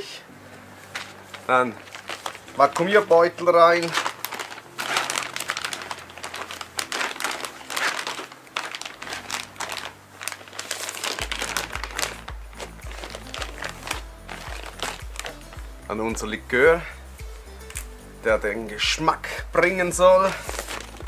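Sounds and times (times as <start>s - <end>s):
plastic bag crinkling: 0.7s - 16.4s, 20.2s - 21.0s
background music with bass beat: 11.2s - 21.0s.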